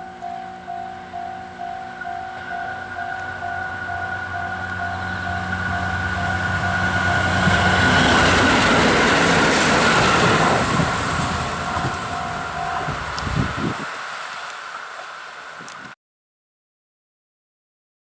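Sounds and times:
level-crossing alarm ringing: 0:00.0 - 0:13.6
diesel railcar engine running: 0:00.0 - 0:15.6
train wheels rolling on rails: 0:00.0 - 0:16.0.

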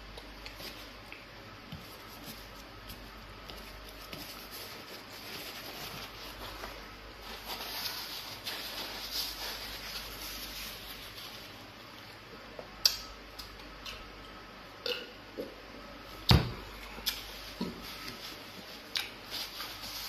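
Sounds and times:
paper tissue rustling: 0:01.8 - 0:11.9, 0:17.3 - 0:20.0
wet chewing and mouth sounds: 0:18.8 - 0:19.7.

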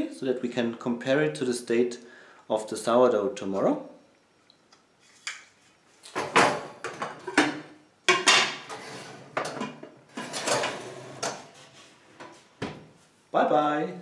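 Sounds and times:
oven rack sliding: 0:08.6 - 0:11.8.

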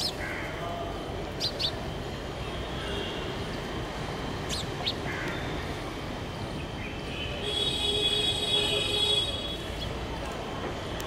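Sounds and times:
sparrow chirping: 0:00.0 - 0:00.3, 0:01.2 - 0:02.0, 0:04.2 - 0:05.8
low background noise: 0:00.0 - 0:11.0.

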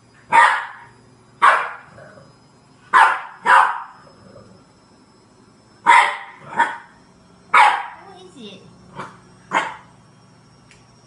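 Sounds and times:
puppy barking: 0:00.3 - 0:01.9, 0:02.9 - 0:03.9, 0:05.9 - 0:06.9, 0:07.5 - 0:08.0, 0:09.0 - 0:09.8.

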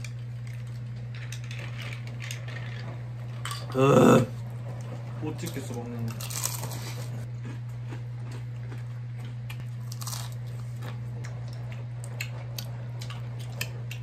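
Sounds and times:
crunchy chewing: 0:06.1 - 0:14.0.

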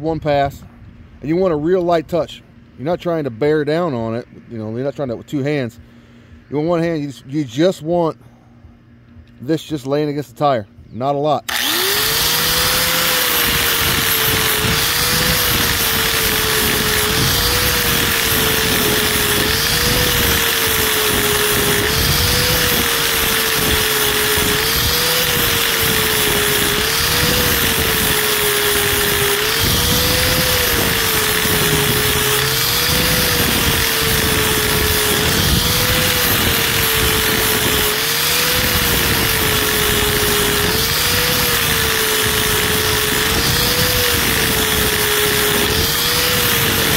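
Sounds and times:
angle grinder on rubber: 0:11.5 - 0:46.9.

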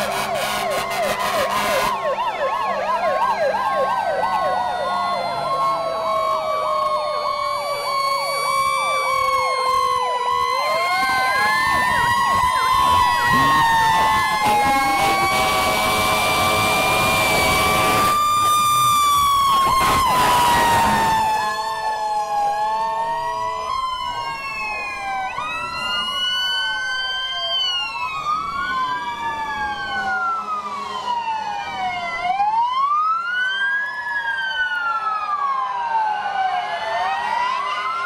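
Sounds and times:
steady horn tone: 0:00.0 - 0:02.0, 0:12.6 - 0:18.2, 0:19.5 - 0:21.6
emergency sirens wailing: 0:00.0 - 0:38.0.

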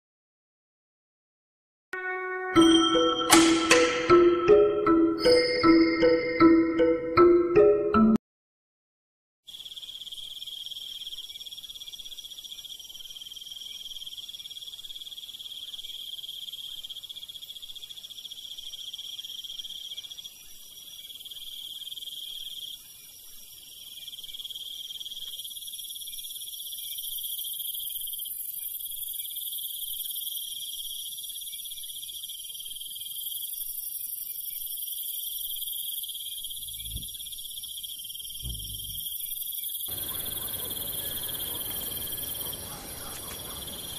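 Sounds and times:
crickets and insects trilling: 0:09.5 - 0:43.9.

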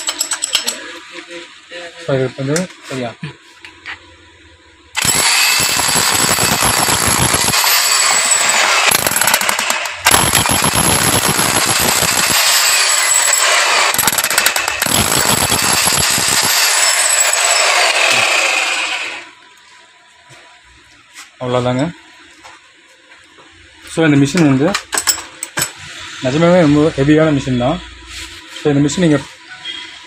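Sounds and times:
demolition hammer breaking concrete: 0:05.0 - 0:18.9.

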